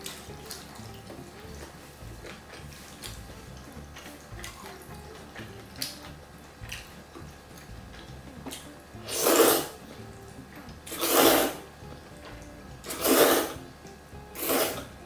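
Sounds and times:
woman slurping noodles: 0:09.1 - 0:09.8, 0:10.9 - 0:11.6, 0:12.9 - 0:13.6, 0:14.4 - 0:14.9.

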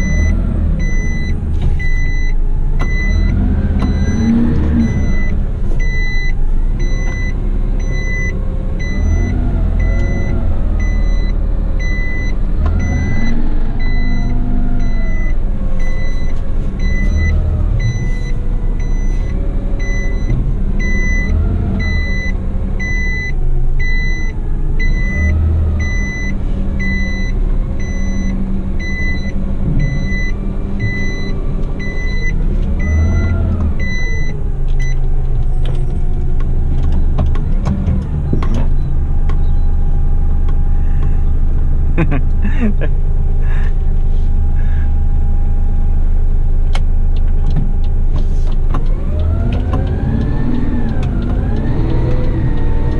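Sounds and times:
reversing alarm beeping: 0:00.0 - 0:35.0
diesel engine revving: 0:00.0 - 0:52.9.

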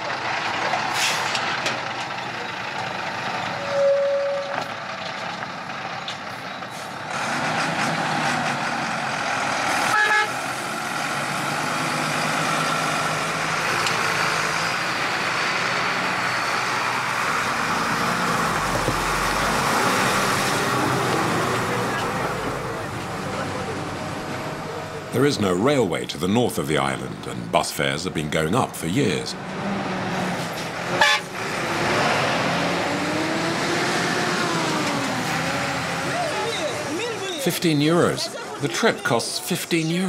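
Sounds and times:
bus engine running: 0:00.0 - 0:40.0
horn toots: 0:03.6 - 0:04.7, 0:09.8 - 0:10.4, 0:30.9 - 0:31.4.

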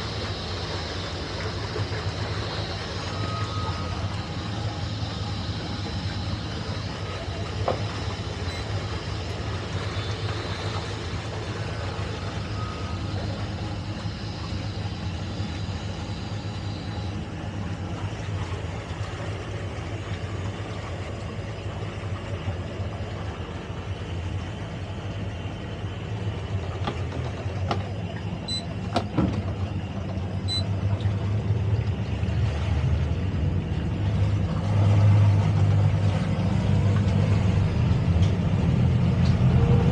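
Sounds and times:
boat engines running low hum: 0:00.0 - 0:39.9
short high beeps: 0:30.5 - 0:30.7.

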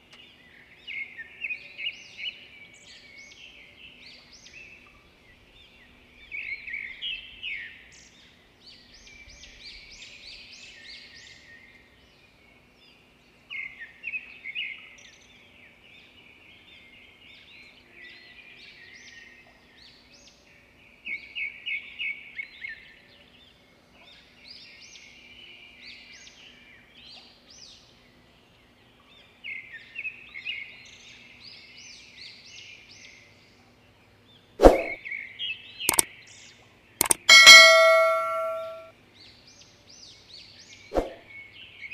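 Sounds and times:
birds chirping and twittering: 0:37.0 - 0:38.9.

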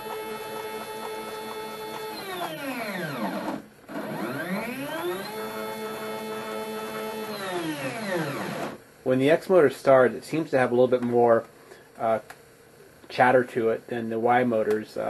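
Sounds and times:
stepper motor whining: 0:00.0 - 0:08.8.

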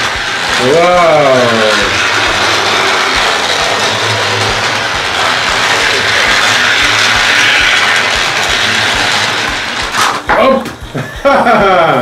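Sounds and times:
toy train motor whirring: 0:00.0 - 0:10.4.

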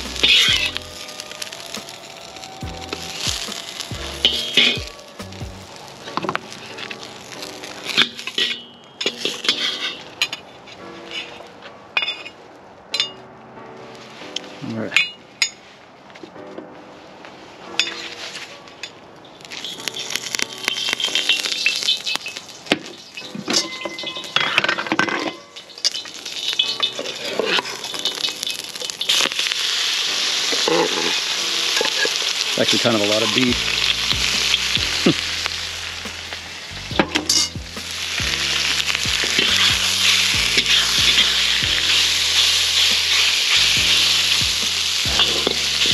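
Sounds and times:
beef sizzling in a wok: 0:00.0 - 0:09.9, 0:19.4 - 0:45.9
metal spatula scraping steel bowl: 0:08.3 - 0:10.4.

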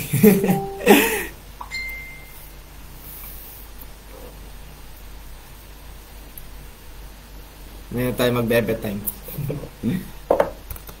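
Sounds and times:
man talking and laughing: 0:00.0 - 0:01.4
high-pitched electronic beep: 0:00.4 - 0:00.9, 0:01.6 - 0:02.5.

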